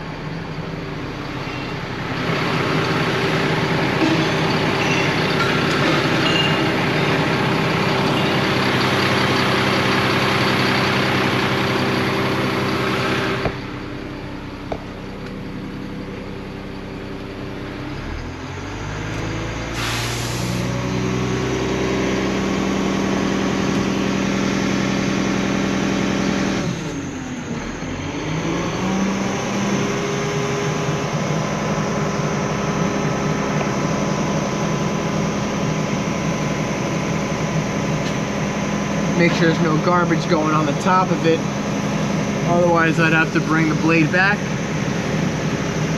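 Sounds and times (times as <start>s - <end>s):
diesel truck engine running: 0.0s - 45.9s
outside noise: 0.0s - 45.9s
short hiss: 19.8s - 20.7s.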